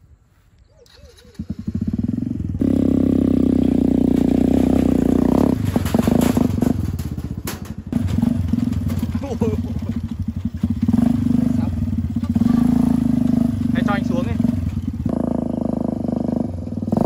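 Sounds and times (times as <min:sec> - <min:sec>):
small buggy engine running: 0:00.8 - 0:17.0
frame rattling and knocking: 0:03.7 - 0:15.2.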